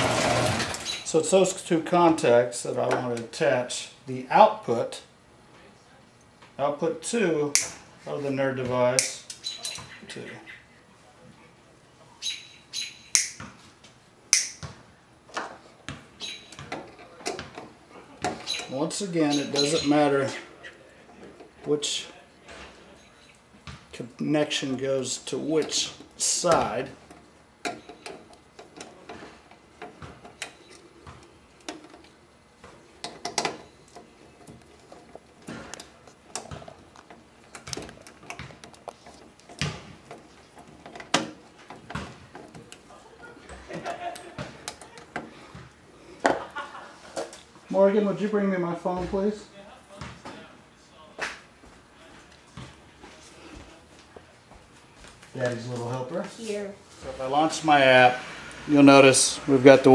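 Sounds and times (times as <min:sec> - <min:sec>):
wires squeaking in terminals: 0:00.7 - 0:01.2, 0:09.3 - 0:10.7, 0:12.2 - 0:13.4, 0:16.2 - 0:16.6, 0:18.3 - 0:20.8, 0:27.6 - 0:28.5
sharp snapping clicks: 0:13.1 - 0:13.4, 0:14.3 - 0:14.6.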